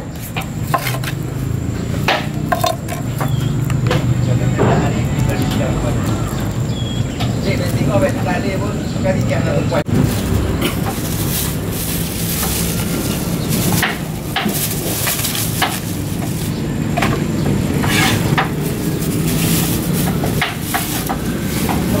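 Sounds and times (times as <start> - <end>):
plastic bag crinkling: 2.3 - 3.8, 9.9 - 22.0.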